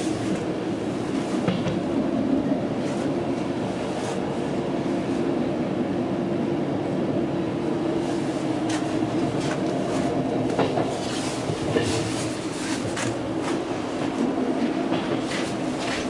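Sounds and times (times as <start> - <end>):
electric train rumble and hum: 0.0 - 16.0.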